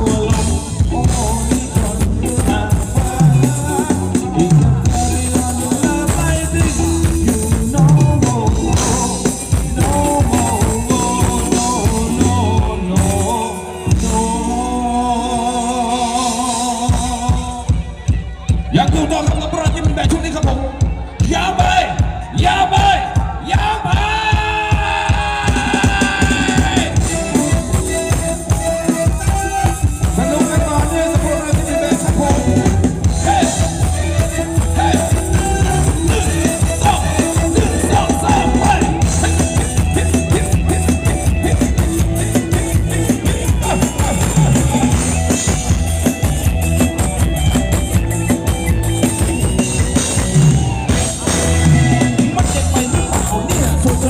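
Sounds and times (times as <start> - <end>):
drum kit beat: 0.0 - 54.0
live band playing dance music: 0.0 - 54.0.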